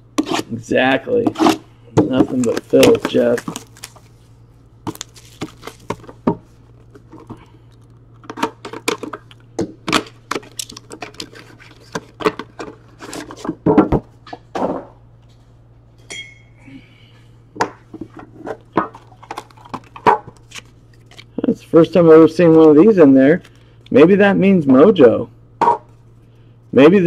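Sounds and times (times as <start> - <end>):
plastic shrink wrap crinkling: 2.2 - 8.4.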